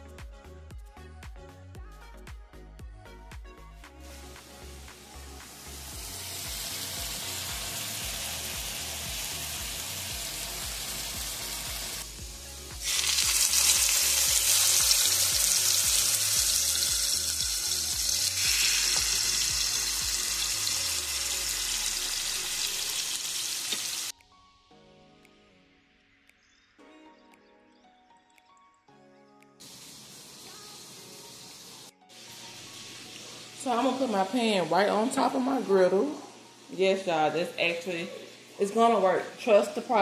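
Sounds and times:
chicken sizzling on a griddle: 0:05.5 - 0:24.1, 0:29.6 - 0:33.6
steak frying in hot oil: 0:05.5 - 0:24.1.

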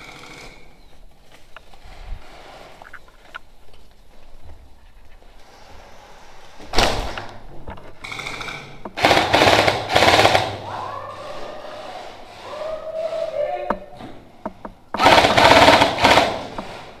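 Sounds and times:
gel blaster firing bursts: 0:15.0 - 0:16.6.

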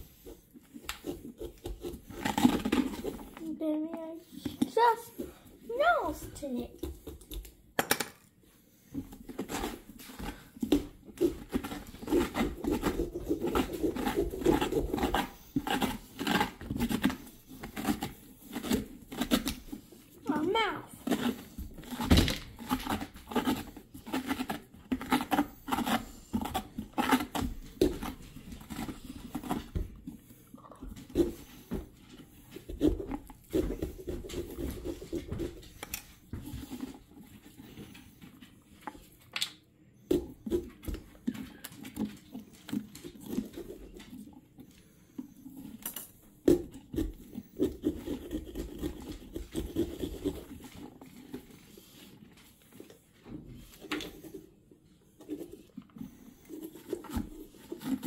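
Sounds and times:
knife sawing through pumpkin: 0:00.0 - 0:03.5, 0:08.7 - 0:38.1, 0:46.5 - 0:53.0, 0:55.2 - 0:58.0.

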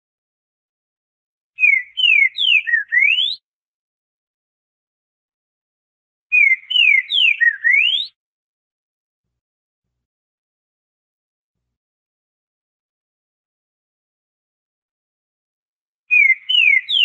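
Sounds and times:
bird whistling song: 0:01.6 - 0:03.4, 0:06.3 - 0:08.2, 0:16.1 - 0:17.0.

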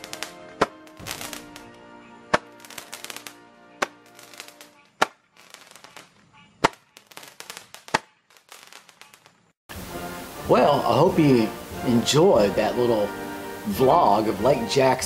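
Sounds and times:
music playing: 0:00.0 - 0:05.0, 0:09.7 - 0:15.0
roman candles popping: 0:00.0 - 0:09.6
crackling sparks: 0:00.0 - 0:12.0.

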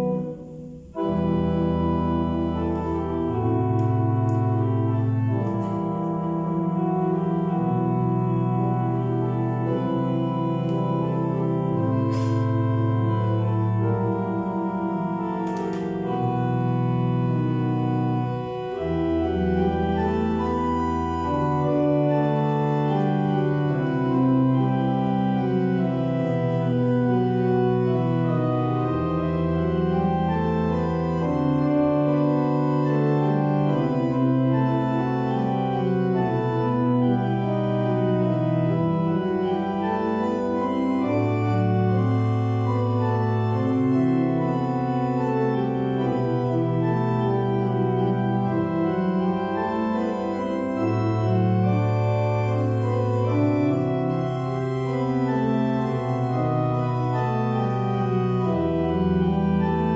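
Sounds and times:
deep organ pedal bass notes: 0:00.0 - 0:59.9
organ playing held chords: 0:00.0 - 0:59.9.

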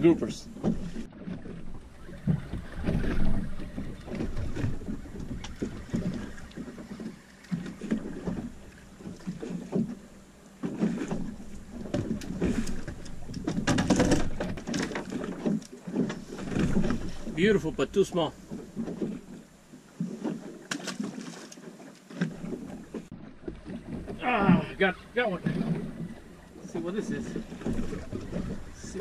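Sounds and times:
water lapping against boat hull: 0:00.0 - 0:29.0
wind on microphone: 0:00.7 - 0:06.8.

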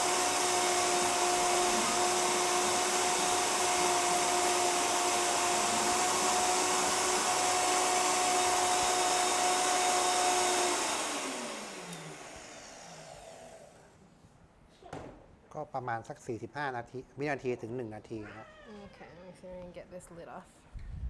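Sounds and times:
blender motor winding down: 0:00.0 - 0:13.8
blender running: 0:00.0 - 0:13.9.

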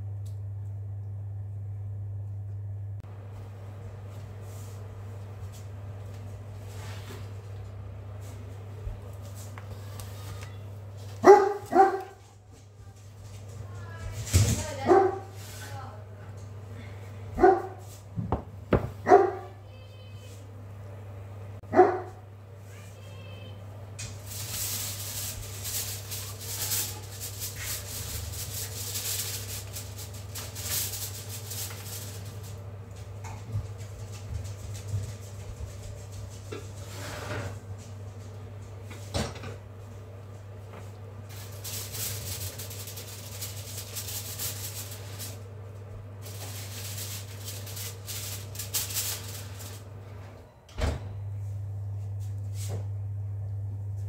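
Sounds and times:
steady low hum: 0:00.0 - 0:54.0
oven door knock: 0:18.2 - 0:19.3
aluminium foil crinkling: 0:24.0 - 0:36.5, 0:41.2 - 0:49.9.

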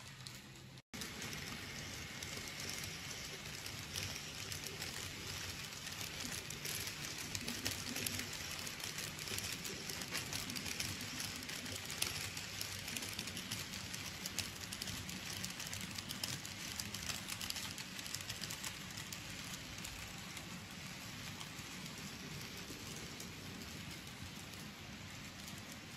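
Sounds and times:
model train wheels rattling on rail: 0:00.0 - 0:25.9.

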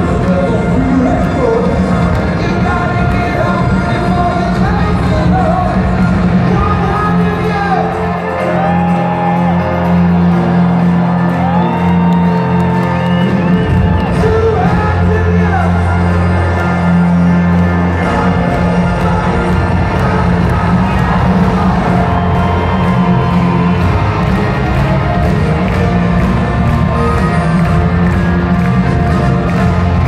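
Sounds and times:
live band through pa: 0:00.0 - 0:30.0
crowd whooping and shouting: 0:06.6 - 0:30.0
person singing: 0:14.1 - 0:26.1.

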